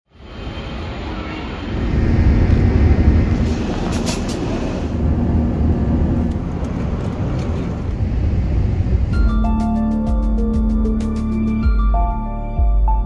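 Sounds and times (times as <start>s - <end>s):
jet engine roar in cabin: 0.1s - 9.4s
low airframe rumble: 0.1s - 11.2s.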